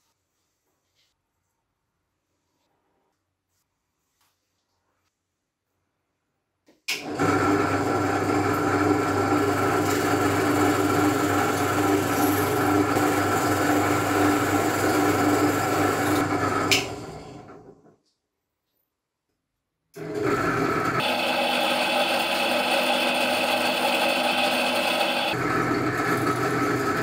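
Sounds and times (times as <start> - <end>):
drill press motor humming: 7.0 - 17.7, 20.0 - 27.0.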